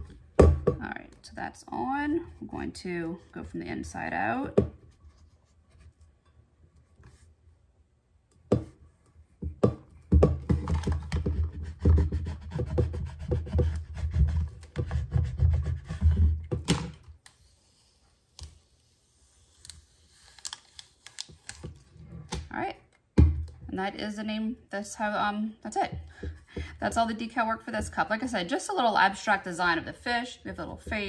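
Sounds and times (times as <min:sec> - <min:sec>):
dull thumps: 0:00.0 - 0:01.0.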